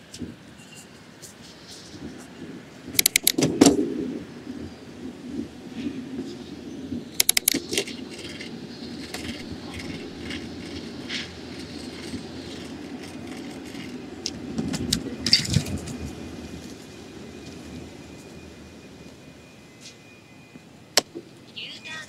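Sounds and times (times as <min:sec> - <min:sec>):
bicycle tyres rumbling: 0:01.5 - 0:19.7
bicycle clicks: 0:02.9 - 0:03.5, 0:07.1 - 0:16.2
metallic rattles of bike: 0:02.9 - 0:03.8, 0:07.1 - 0:18.8.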